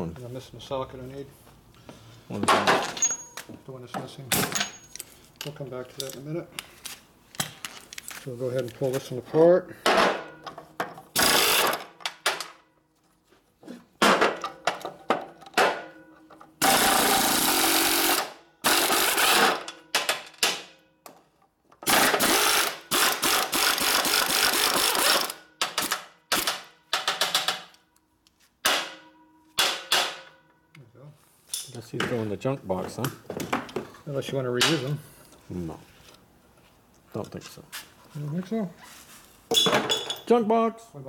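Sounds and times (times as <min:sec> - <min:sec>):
air impact wrench hammering: 0:11.1 - 0:12.2, 0:16.6 - 0:20.7, 0:21.8 - 0:27.6, 0:28.6 - 0:30.3.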